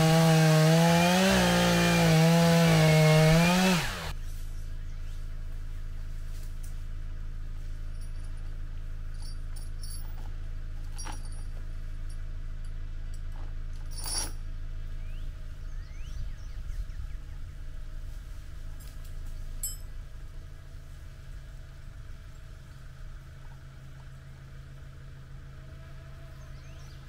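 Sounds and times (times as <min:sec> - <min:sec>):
engine idling: 0:17.6 - 0:27.0.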